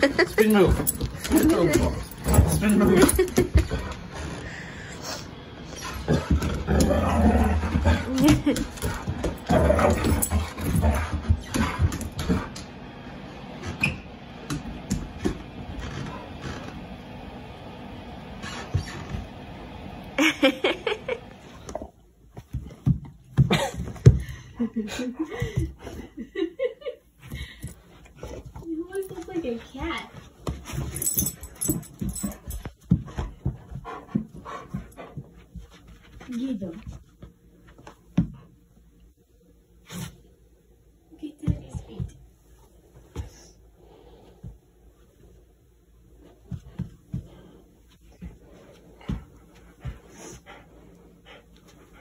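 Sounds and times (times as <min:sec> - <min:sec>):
dog breathy play noises: 0:30.6 - 0:36.1, 0:46.7 - 0:52.0
dog panting: 0:32.2 - 0:35.8, 0:48.1 - 0:52.0.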